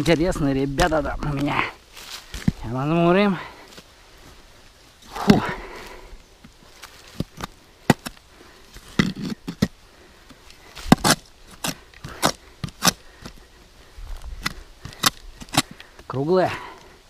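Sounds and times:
shovel chopping into soil: 5.2 - 5.6, 10.8 - 13.4, 14.4 - 15.8.

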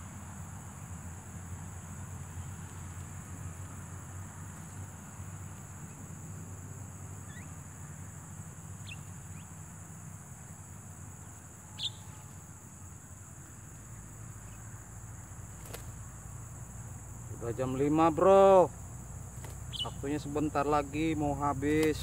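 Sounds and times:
insects chirring: 0.0 - 22.0
bird chirps: 7.2 - 7.6, 8.8 - 9.6, 11.7 - 12.3, 19.5 - 20.2.

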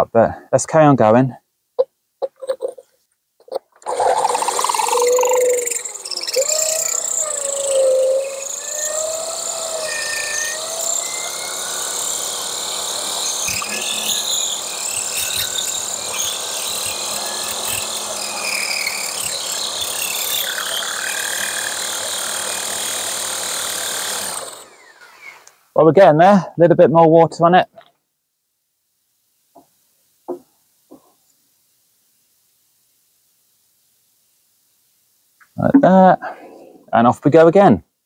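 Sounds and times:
drill grinding into clay pot: 3.8 - 25.5.

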